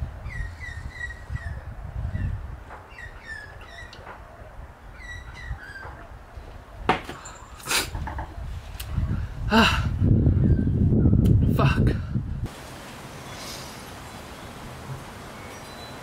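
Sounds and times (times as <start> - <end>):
birds chirping: 0.0 - 9.3, 13.0 - 16.0.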